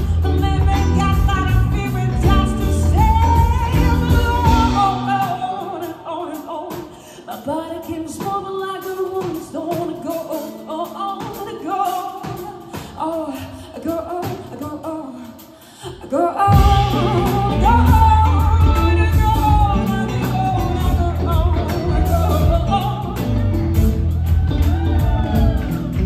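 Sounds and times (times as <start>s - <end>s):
bass guitar: 0.0s - 5.7s, 16.5s - 26.0s
electric guitars: 0.0s - 6.1s, 16.5s - 26.0s
drums: 0.0s - 26.0s
woman singing lead: 0.0s - 26.0s.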